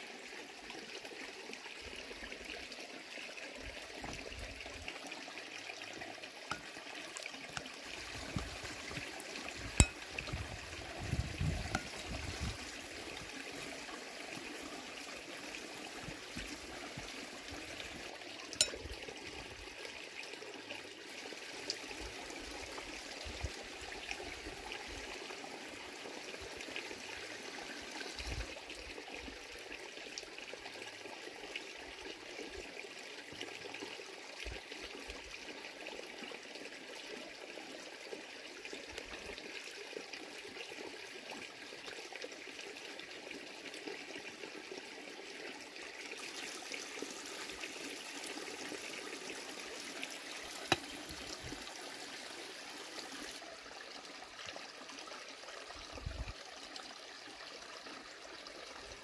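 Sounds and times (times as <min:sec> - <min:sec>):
running water: 0:00.0 - 0:59.0.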